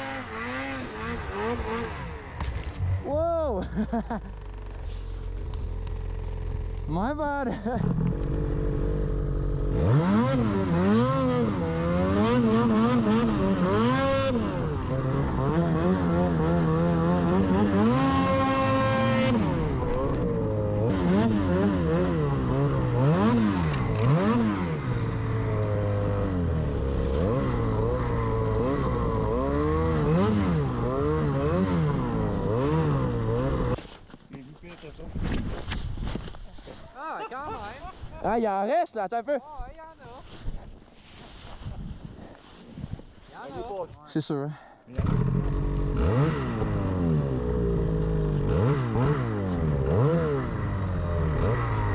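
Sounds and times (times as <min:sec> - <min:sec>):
snowmobile engine revving: 0:00.0 - 0:33.8, 0:44.9 - 0:51.9.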